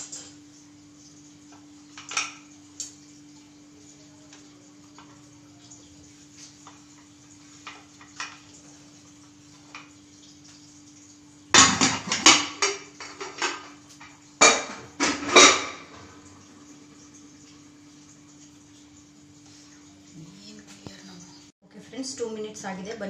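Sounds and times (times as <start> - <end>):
steel kitchen utensils clattering: 0.0 - 0.4, 11.6 - 16.0.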